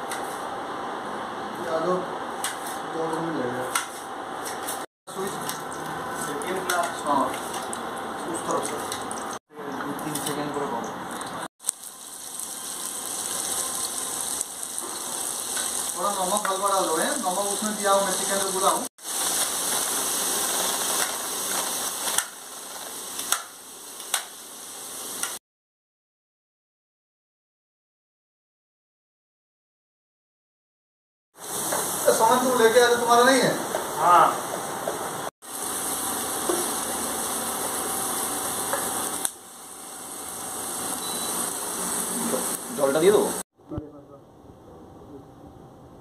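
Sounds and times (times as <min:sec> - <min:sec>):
onions sizzling in oil: 0:11.6 - 0:25.4, 0:31.4 - 0:43.4.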